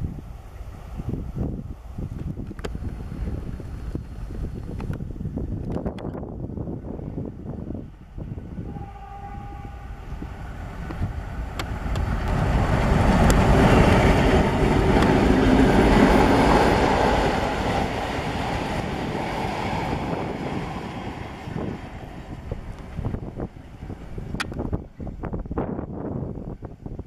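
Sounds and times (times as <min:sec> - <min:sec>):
diesel locomotive engine: 0:00.0 - 0:27.0
wagons rumbling on rails: 0:06.8 - 0:27.0.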